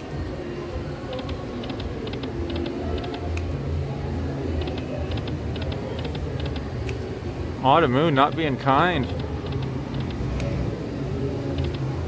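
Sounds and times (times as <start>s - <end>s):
low casino hum: 0.0s - 12.0s.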